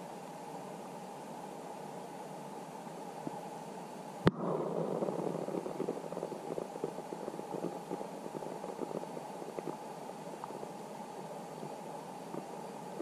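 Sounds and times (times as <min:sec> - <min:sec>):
crackle of small ticks: 0:04.2 - 0:13.0
underwater rush of water: 0:04.3 - 0:13.0.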